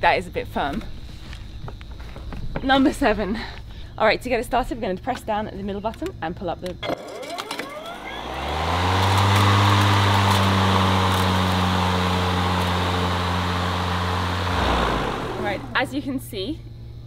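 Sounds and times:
lawn mower blades whining: 0:06.8 - 0:16.3.

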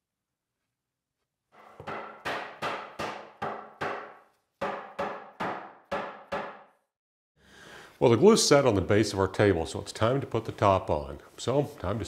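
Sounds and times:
fist pounding wooden tabletop: 0:01.8 - 0:06.7.

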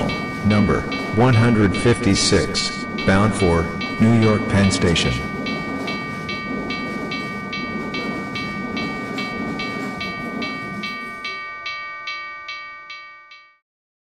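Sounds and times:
low rumble of train: 0:00.0 - 0:13.3
bell struck steadily: 0:00.0 - 0:13.6.

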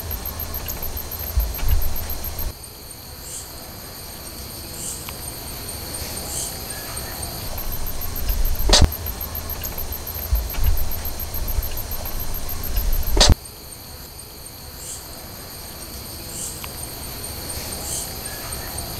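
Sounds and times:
low rumble: 0:00.0 - 0:02.5, 0:07.5 - 0:13.4
sharp clicks: 0:00.0 - 0:02.5, 0:07.4 - 0:13.4
crickets chirping: 0:00.0 - 0:18.9
repeating insect call: 0:00.0 - 0:18.9.

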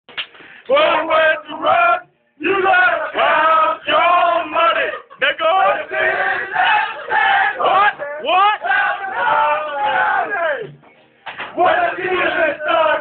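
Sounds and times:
group of men singing: 0:00.7 - 0:10.5, 0:11.5 - 0:13.0.

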